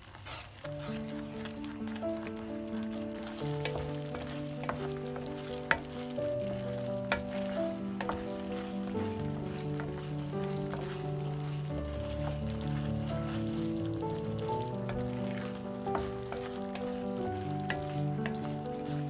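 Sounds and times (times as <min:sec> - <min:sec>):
meat sizzling in a frying pan: 0:00.0 - 0:19.0
wooden spatula scraping a pan: 0:00.0 - 0:19.0
background music of held chords: 0:00.7 - 0:19.0
spatula tapping on a pan: 0:14.8 - 0:19.0.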